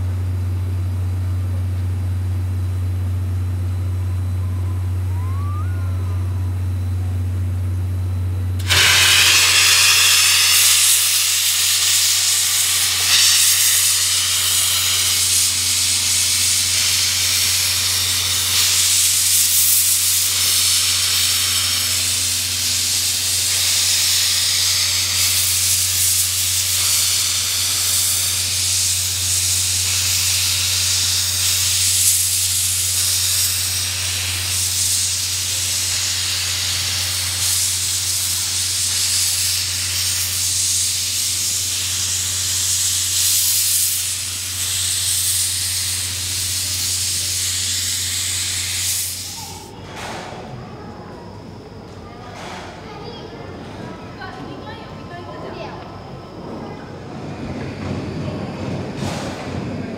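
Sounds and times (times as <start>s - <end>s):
steady low hum: 0.0s - 49.6s
steam locomotive hissing steam: 8.6s - 50.3s, 57.2s - 59.9s.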